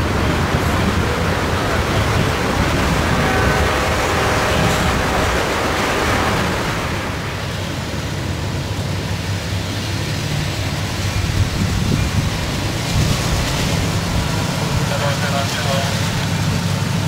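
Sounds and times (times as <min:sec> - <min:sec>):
diesel locomotive rumble: 0:00.0 - 0:17.0
freight cars rolling on rails: 0:00.0 - 0:17.0.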